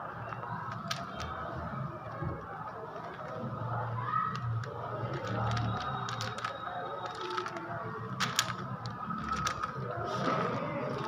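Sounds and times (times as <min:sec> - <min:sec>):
puzzle cube clicking: 0:00.7 - 0:01.4, 0:04.3 - 0:09.8.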